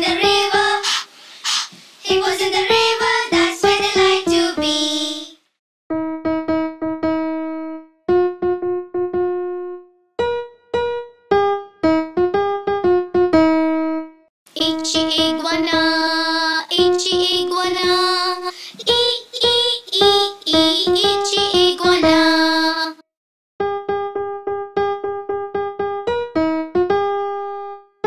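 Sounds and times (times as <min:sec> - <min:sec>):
children's song on electric keyboard: 0:00.0 - 0:23.1.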